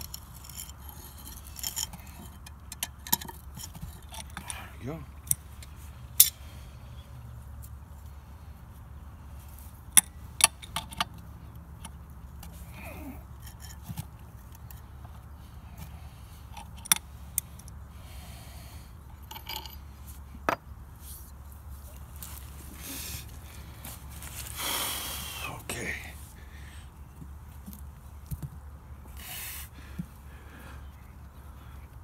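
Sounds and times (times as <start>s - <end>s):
metal pump parts clicking: 0.0s - 4.6s.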